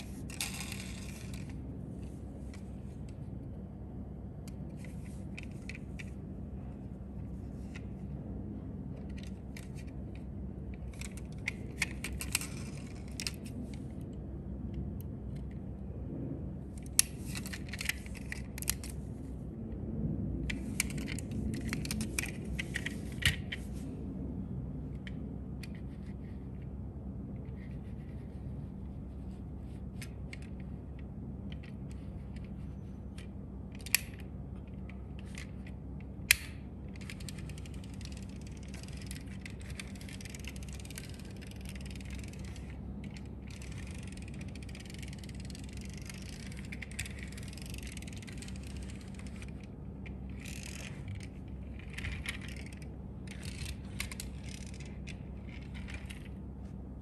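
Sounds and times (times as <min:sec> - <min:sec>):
toy car motor whirring: 0:00.0 - 0:01.6, 0:37.0 - 0:56.2.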